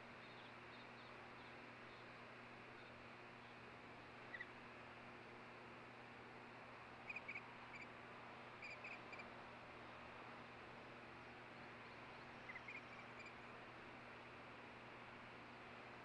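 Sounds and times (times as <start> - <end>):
osprey chirps: 8.6 - 9.2, 12.4 - 13.4.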